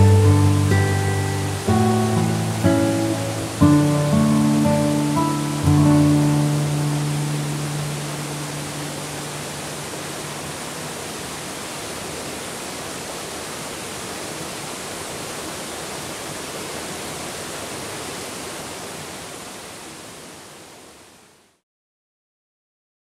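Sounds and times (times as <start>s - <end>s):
low musical tone: 0.0s - 10.5s
stream rushing over rocks: 0.0s - 21.6s.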